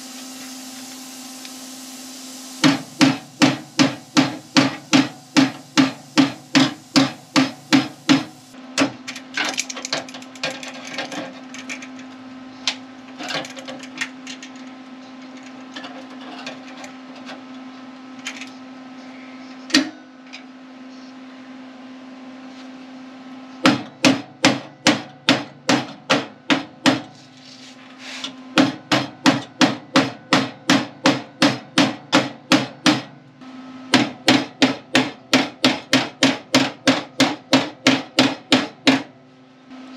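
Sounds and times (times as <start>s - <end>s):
hammer striking sheet steel: 2.6s - 9.0s, 23.7s - 27.2s, 28.6s - 33.2s, 33.9s - 39.1s.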